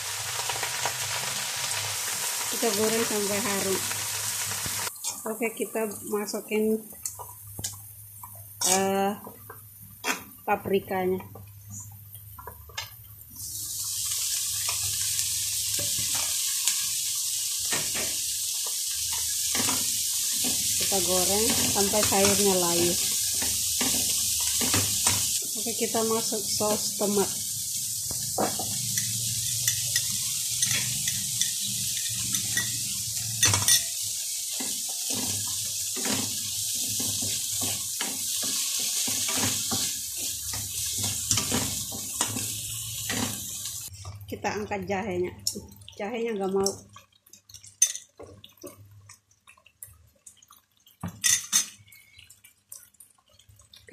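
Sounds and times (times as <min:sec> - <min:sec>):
vegetables sizzling in hot oil: 0:00.0 - 0:49.1
frying hiss: 0:00.0 - 0:53.9
utensils clicking and scraping pans: 0:06.9 - 0:10.3, 0:14.5 - 0:16.8, 0:17.6 - 0:27.3, 0:28.1 - 0:44.2, 0:51.0 - 0:52.8.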